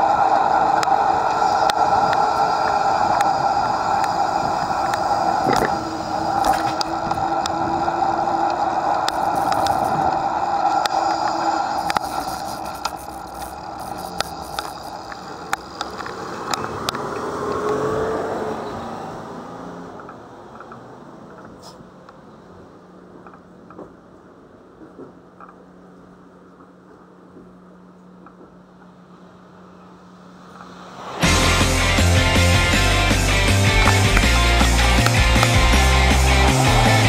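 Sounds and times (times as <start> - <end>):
tyre and wind rush: 0.0 - 18.6, 30.0 - 37.0.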